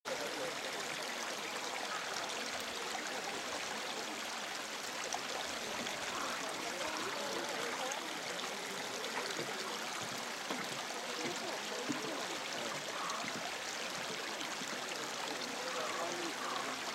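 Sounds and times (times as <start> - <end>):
running water: 0.1 - 16.9.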